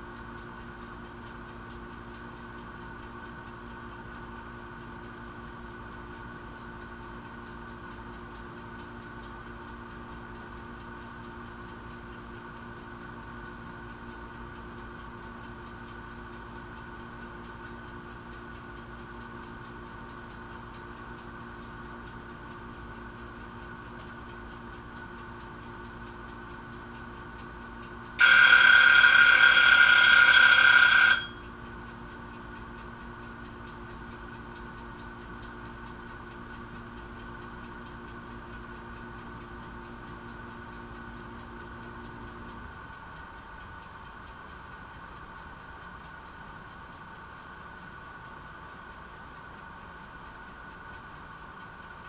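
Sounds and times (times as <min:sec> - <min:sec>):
steady background hum: 0:00.0 - 0:52.0
loud ringing tone: 0:28.2 - 0:31.7.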